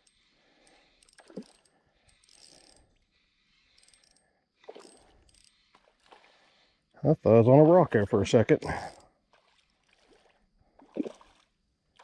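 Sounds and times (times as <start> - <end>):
fishing reel clicking: 0.0 - 6.0.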